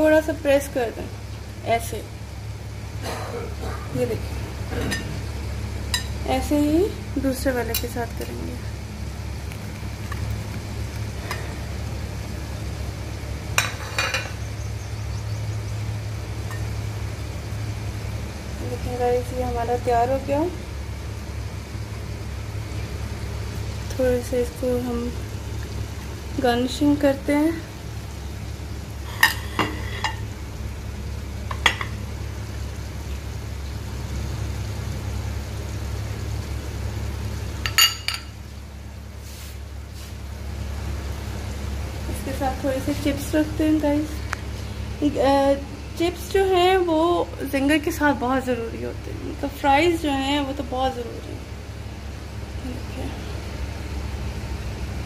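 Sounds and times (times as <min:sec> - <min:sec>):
low steady hum: 0:00.0 - 0:55.0
glassware clinking: 0:13.6 - 0:14.4, 0:37.6 - 0:38.4
glass plate clinking on counter: 0:37.7 - 0:38.3.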